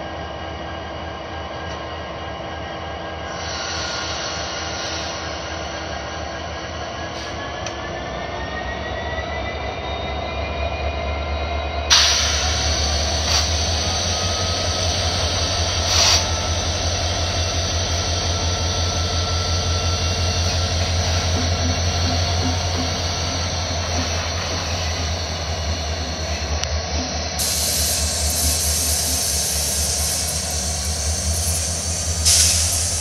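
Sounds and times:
diesel locomotive engine droning: 0.0s - 33.0s.

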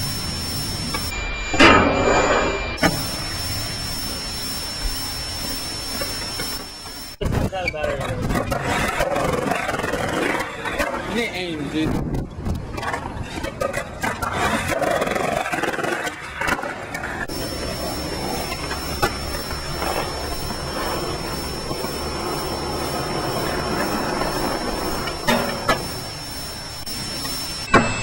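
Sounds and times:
thin high tone: 0.0s - 7.2s, 17.3s - 28.0s
skateboard wheels rolling on concrete: 2.8s - 28.0s
skateboard clacks: 7.8s - 25.9s.

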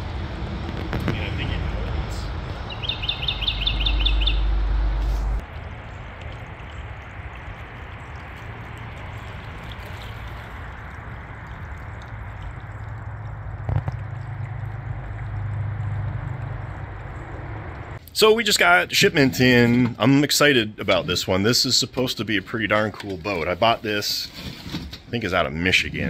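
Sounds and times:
low rumble: 0.0s - 18.0s
steady outdoor hiss: 0.0s - 24.2s
bird chirping high notes: 2.7s - 4.7s.

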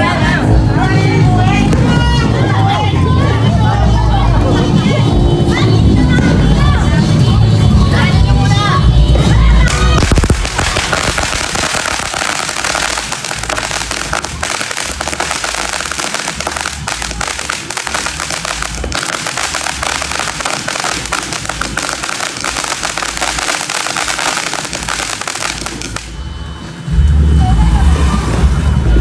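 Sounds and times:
firecrackers crackling: 9.2s - 26.3s
deep firework thumps: 9.7s - 26.1s.

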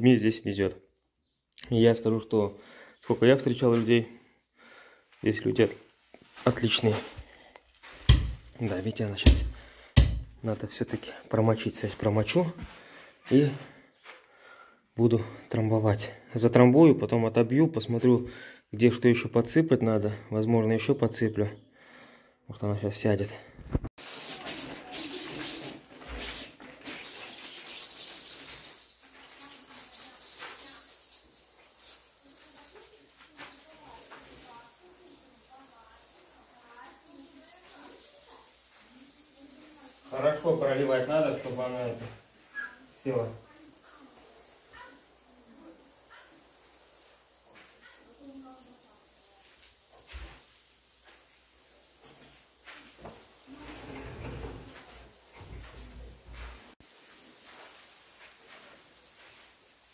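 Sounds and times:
water pattering on crushed stone: 6.2s - 10.3s, 24.0s - 53.6s, 56.4s - 59.9s
hose spray hissing: 24.0s - 59.9s.

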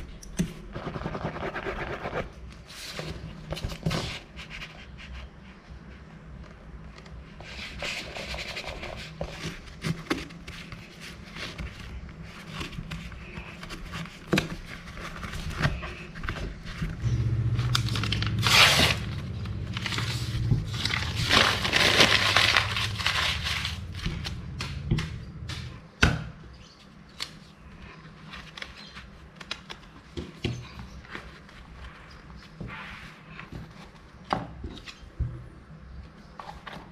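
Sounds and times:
paper sheet rustling: 7.4s - 25.8s.

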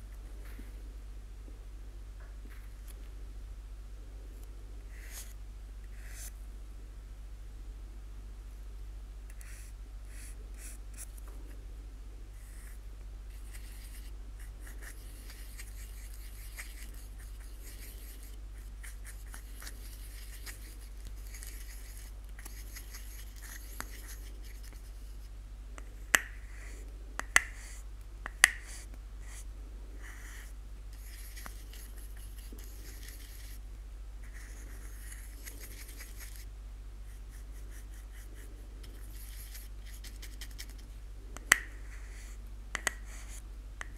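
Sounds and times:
steady low hum: 0.0s - 43.9s
paintbrush brushing on plastic: 12.4s - 25.3s, 28.5s - 33.6s, 34.2s - 36.5s, 37.1s - 40.8s.

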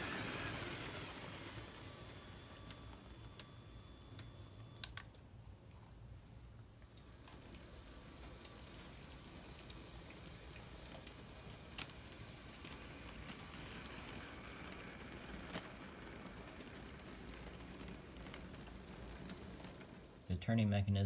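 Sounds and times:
wheels clicking over rail joints: 0.0s - 4.9s
toy train rolling whir: 0.0s - 5.2s, 6.8s - 20.7s.

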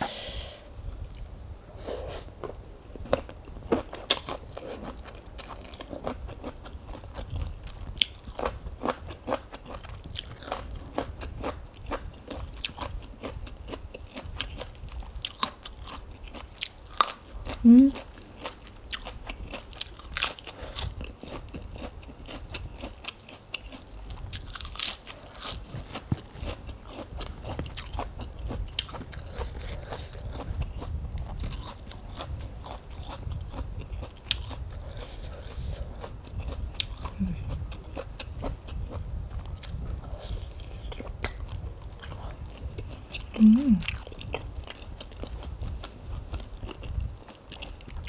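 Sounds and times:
chewing: 2.1s - 48.0s
crunching lettuce bites: 8.0s - 30.5s, 31.2s - 38.9s
person humming: 17.6s - 18.0s, 37.2s - 37.5s, 43.4s - 43.9s.

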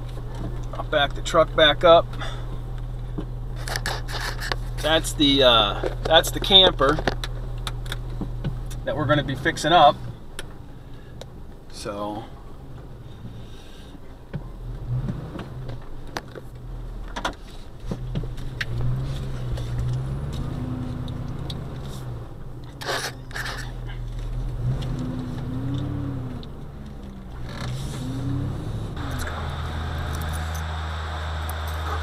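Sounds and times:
truck engine running: 15.9s - 32.0s.

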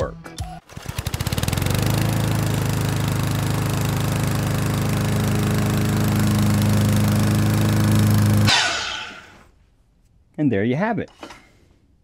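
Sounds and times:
miter saw motor humming: 0.9s - 9.4s
saw blade cutting hiss: 8.4s - 9.4s.

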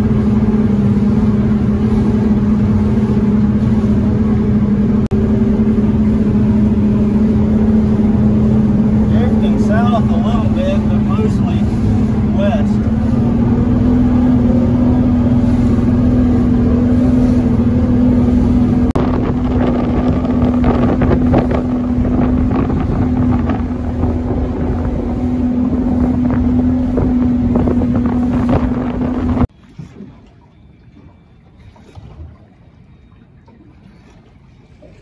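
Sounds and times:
motorboat engine running: 0.0s - 35.0s
wind on microphone: 10.4s - 30.2s.

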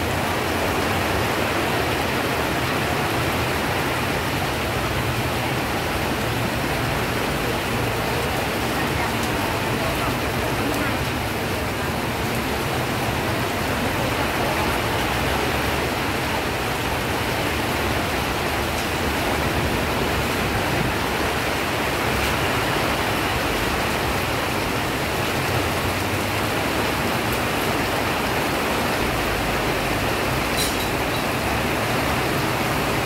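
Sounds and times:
heavy rain: 0.0s - 33.0s.

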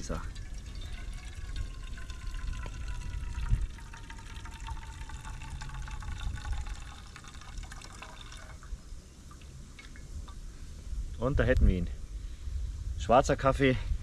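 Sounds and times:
coffee pouring into metal bowl: 0.0s - 8.7s.

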